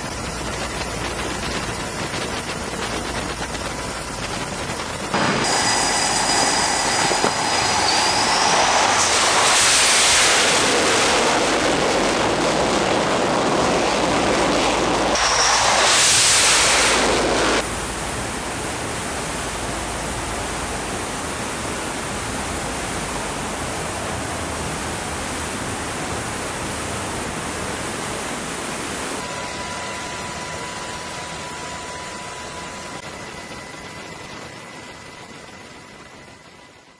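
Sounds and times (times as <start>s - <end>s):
jet engine roar: 0.0s - 35.0s
faint steady hum: 0.0s - 36.9s
quieter rushing noise: 5.1s - 24.8s.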